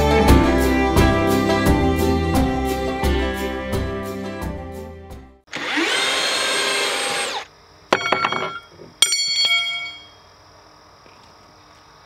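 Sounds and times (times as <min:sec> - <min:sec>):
background music: 0:00.0 - 0:05.4
cordless drill spinning: 0:05.5 - 0:07.5
sharp clicks with metallic ring: 0:08.0 - 0:10.2.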